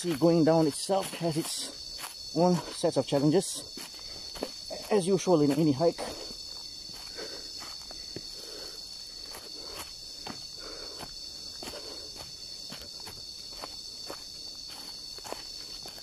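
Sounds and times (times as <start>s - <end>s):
footsteps on dry leaves and rocks: 0.0s - 16.0s
high-pitched insect chorus: 0.0s - 16.0s.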